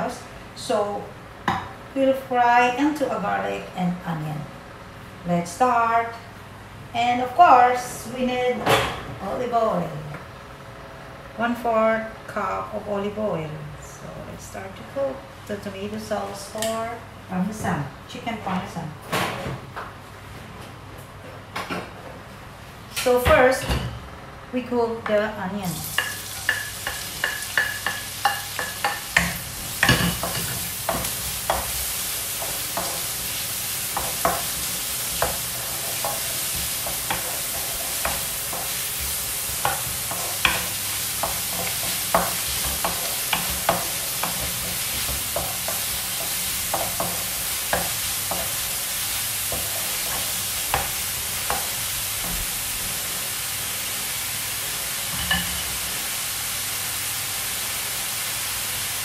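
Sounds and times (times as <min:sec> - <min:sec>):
onion sizzling in oil: 0:25.6 - 0:59.0
wooden spatula tapping pan: 0:26.0 - 0:31.8, 0:36.8 - 0:48.6.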